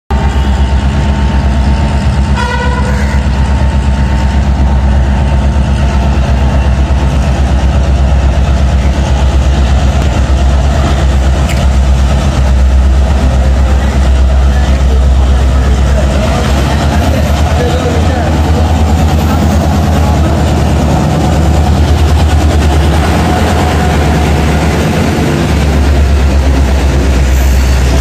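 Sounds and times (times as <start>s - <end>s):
diesel locomotive engine throbbing: 0.1s - 28.0s
train horn toot: 2.3s - 3.4s.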